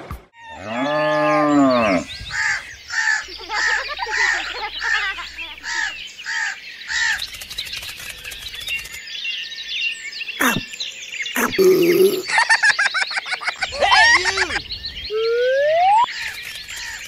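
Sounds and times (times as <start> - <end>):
cow mooing: 0.5 - 2.1
crow cawing: 5.6 - 7.1.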